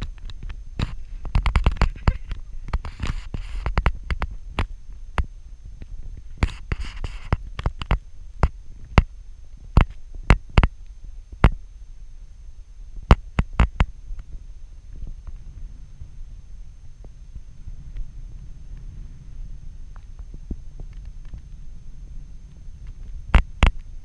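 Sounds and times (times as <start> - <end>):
wind buffeting microphone: 12.8 - 24.0.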